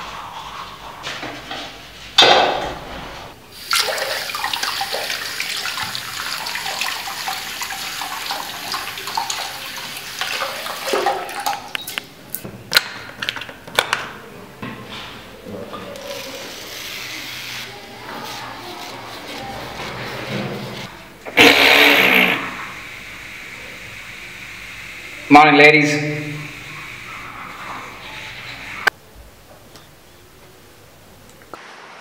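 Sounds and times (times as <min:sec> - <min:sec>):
tap water running into washbasin: 0:03.6 - 0:12.0
short loud burst of noise: 0:21.3 - 0:22.8.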